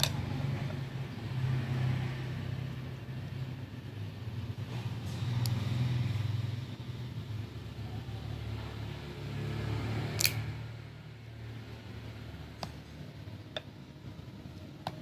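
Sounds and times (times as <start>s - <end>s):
folding knife blade clicking: 10.2s - 10.4s.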